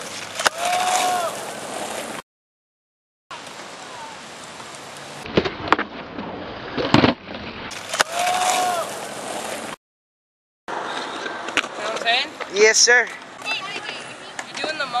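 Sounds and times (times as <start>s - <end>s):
skateboard popping and landing: 0.0s - 2.2s, 4.6s - 9.7s, 10.7s - 15.0s
skateboard wheels rolling on concrete: 0.0s - 2.2s, 3.3s - 9.8s, 10.7s - 15.0s.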